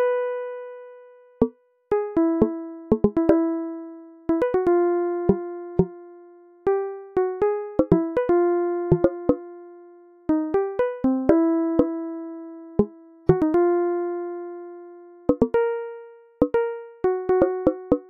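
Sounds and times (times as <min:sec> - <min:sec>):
sparse keyboard melody: 0:02.2 - 0:03.5, 0:07.8 - 0:09.4, 0:12.8 - 0:13.6, 0:15.3 - 0:15.7, 0:16.4 - 0:18.0.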